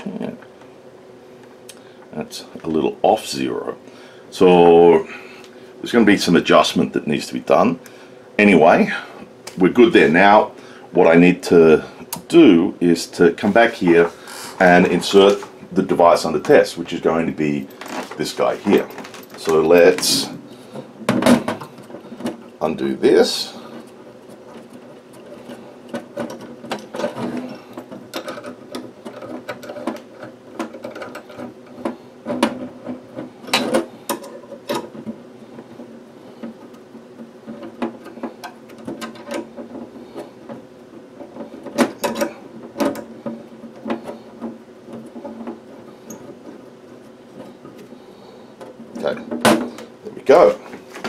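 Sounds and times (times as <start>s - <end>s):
steady low hum: 0.0s - 51.0s
metal connectors clicking and scraping: 16.4s - 50.6s.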